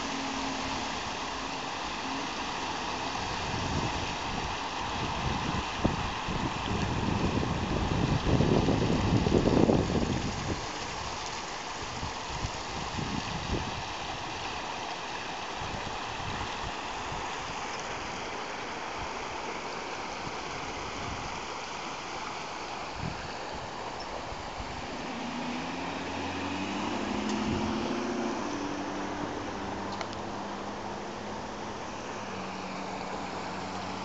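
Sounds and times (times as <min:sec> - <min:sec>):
water gushing across pavement: 0:00.0 - 0:34.0.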